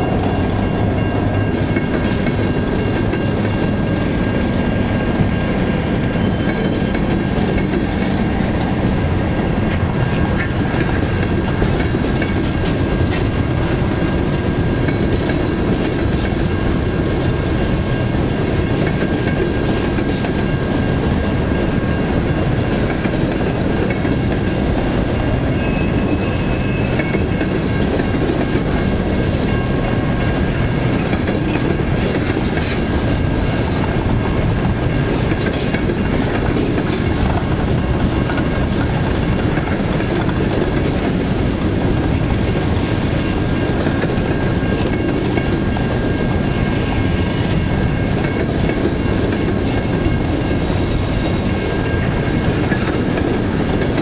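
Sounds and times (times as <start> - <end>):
clickety-clack over rail joints: 0.0 - 54.0.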